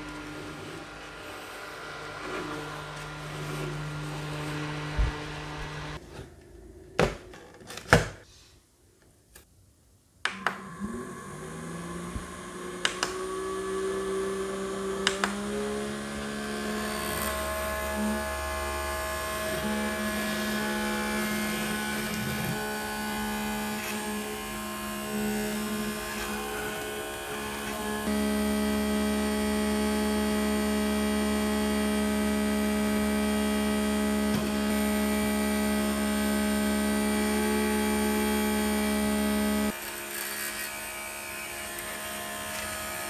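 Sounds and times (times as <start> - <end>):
fan motor spinning up: 0.0 - 6.0, 10.3 - 39.8
mini fans whirring: 10.2 - 43.0.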